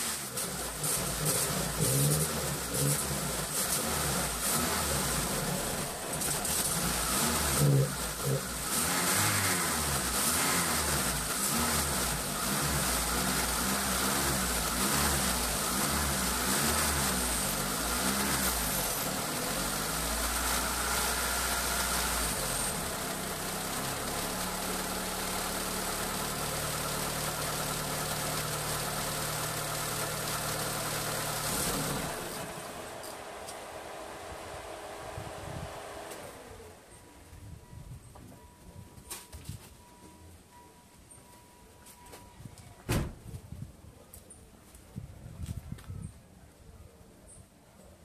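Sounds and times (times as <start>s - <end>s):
car engine revving unevenly and idling: 0.0s - 37.0s.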